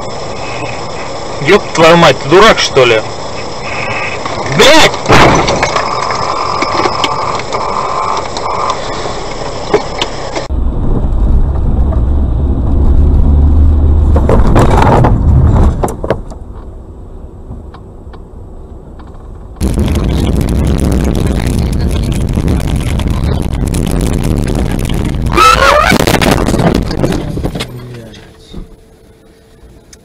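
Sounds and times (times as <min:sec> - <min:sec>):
car driving noise: 0:00.0 - 0:30.0
heavy low rumble: 0:10.2 - 0:29.9.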